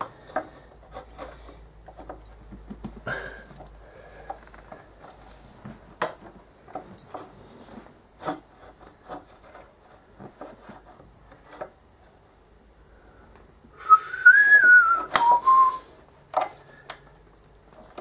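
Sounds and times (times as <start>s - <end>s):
metal bolt clicks and scraping: 6.7s - 7.3s.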